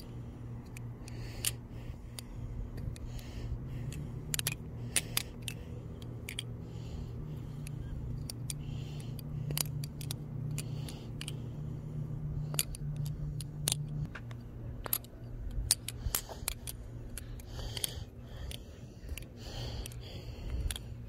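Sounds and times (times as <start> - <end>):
steady low hum: 0.0 - 21.0
butterfly knife metallic clicks: 3.8 - 11.4, 12.4 - 20.9.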